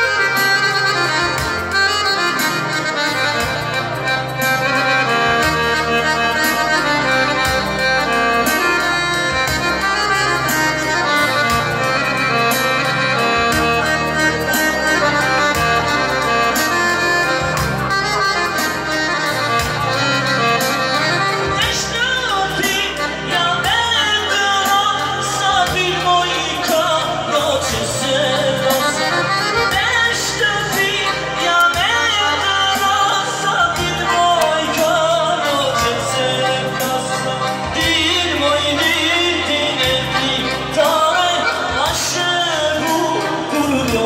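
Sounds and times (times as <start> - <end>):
electronic keyboard melody: 0.0 - 44.0
man singing: 21.4 - 44.0.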